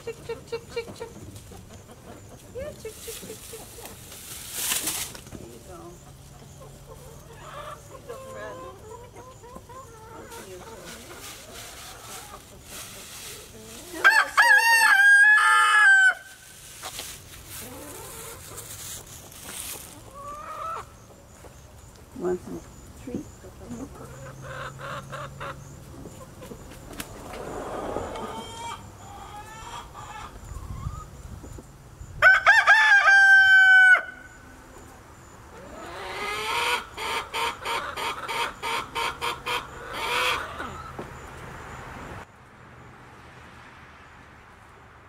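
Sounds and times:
chickens clucking softly: 0.0s - 4.2s, 5.3s - 13.8s, 19.8s - 21.4s, 23.4s - 31.7s, 34.6s - 41.3s
rooster crowing: 14.0s - 16.3s, 32.2s - 34.4s
hen cackling: 19.9s - 21.0s, 23.8s - 25.6s, 27.2s - 31.2s, 35.5s - 41.1s.

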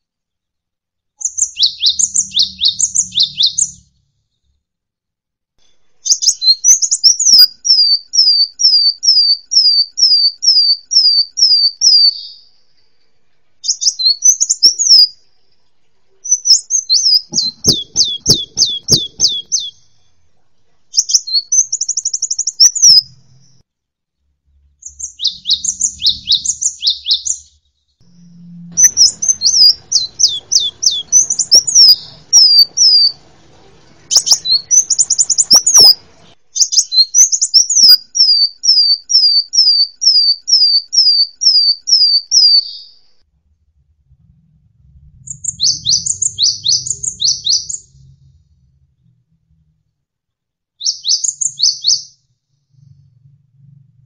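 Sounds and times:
bird trills and chattering: 1.2s - 3.8s, 16.3s - 19.8s, 28.8s - 33.2s, 34.1s - 36.0s
sharp down-slurred bird chirps: 1.2s - 4.6s, 6.0s - 12.8s, 13.6s - 20.1s, 20.9s - 23.6s, 24.6s - 33.2s, 34.1s - 43.1s, 45.2s - 48.4s, 50.8s - 53.1s.

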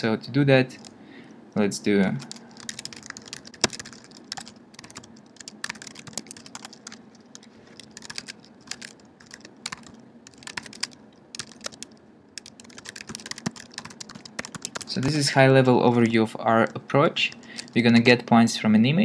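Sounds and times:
typing on computer keyboard: 2.2s - 15.2s, 17.3s - 17.8s.

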